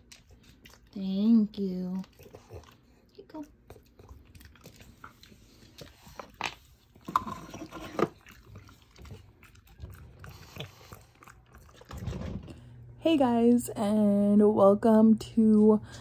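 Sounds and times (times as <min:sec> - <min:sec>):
dog chewing treat: 0:00.0 - 0:12.7.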